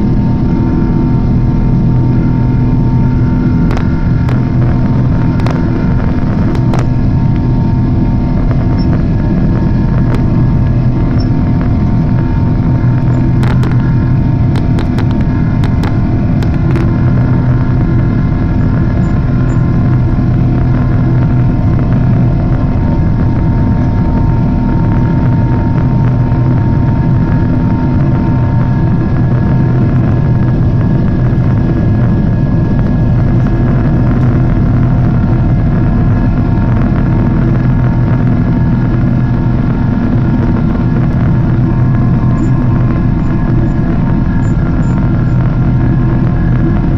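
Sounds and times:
jet engines and rushing air roar: 0.0s - 46.9s
low steady hum: 0.0s - 46.9s.

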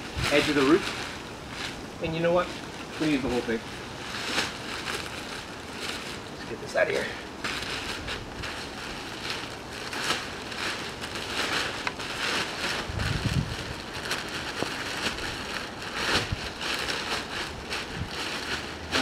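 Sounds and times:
plastic sheeting crinkling: 0.0s - 19.0s.

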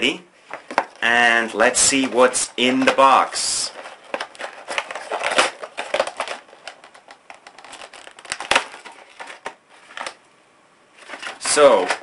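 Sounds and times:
plastic packaging crinkling: 2.0s - 10.2s, 11.0s - 12.0s.

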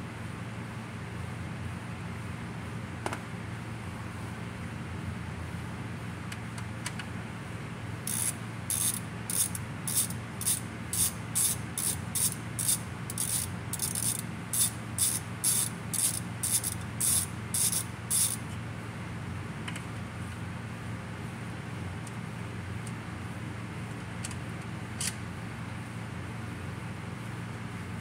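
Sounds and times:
steady low hum: 0.0s - 28.0s
ratchet wrench clicking: 8.0s - 18.5s.

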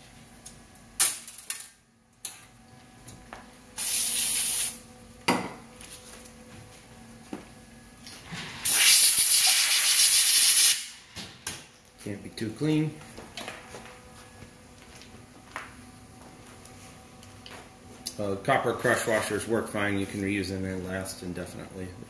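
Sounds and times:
air blow gun hissing: 3.8s - 4.8s, 8.6s - 11.0s.

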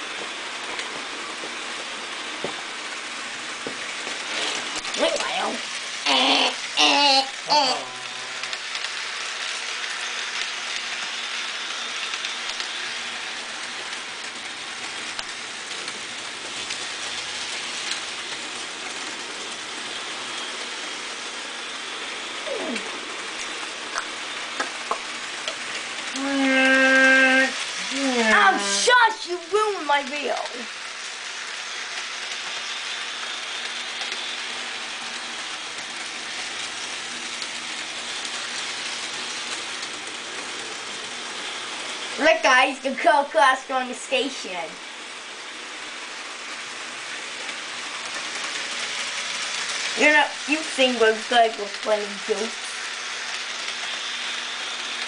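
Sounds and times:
model train whirring on track: 0.0s - 55.0s
wheels clicking over rails: 7.7s - 26.3s.

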